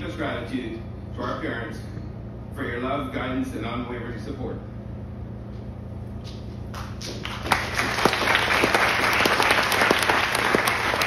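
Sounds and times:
steady low hum: 0:00.0 - 0:11.0
audience applauding: 0:06.8 - 0:11.0.

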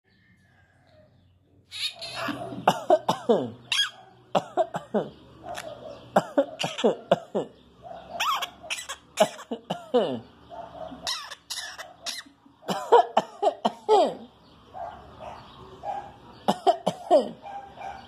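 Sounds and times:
parakeet imitating coughs: 0:01.8 - 0:05.2, 0:06.1 - 0:07.6, 0:08.2 - 0:10.3, 0:11.0 - 0:14.3, 0:16.5 - 0:17.5.

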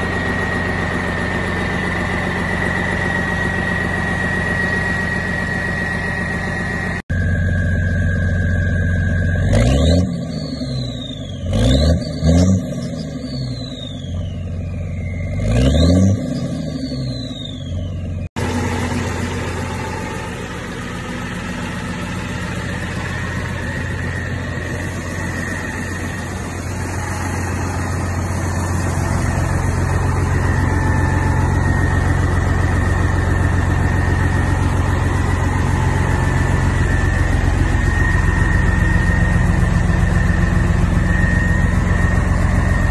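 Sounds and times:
truck engine idling: 0:00.0 - 0:11.7, 0:17.0 - 0:42.9
truck engine revving: 0:08.5 - 0:42.9
thin high tone: 0:18.4 - 0:42.9.

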